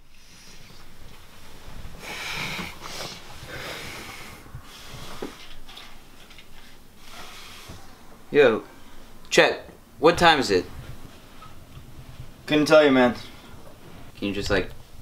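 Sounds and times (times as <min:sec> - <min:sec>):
man breathing and sniffing: 0:00.0 - 0:08.0
bedding and clothes rustling: 0:00.0 - 0:15.0.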